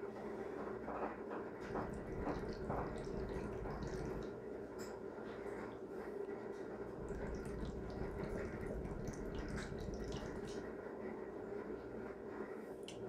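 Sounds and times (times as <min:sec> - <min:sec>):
hookah water bubbling: 0:01.6 - 0:04.7, 0:06.7 - 0:10.8.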